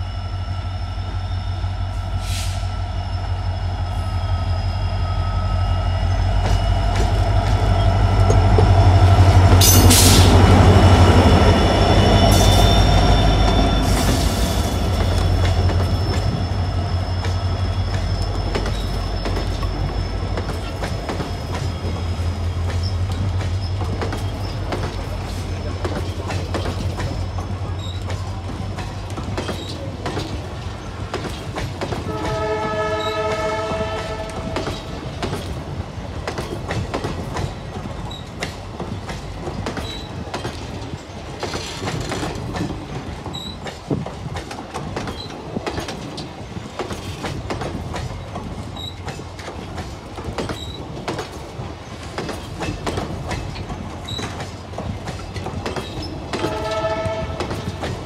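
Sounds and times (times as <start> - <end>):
train wheels clattering over rail joints: 6.4 - 58.0
train horn chord: 32.0 - 34.7, 56.4 - 57.7.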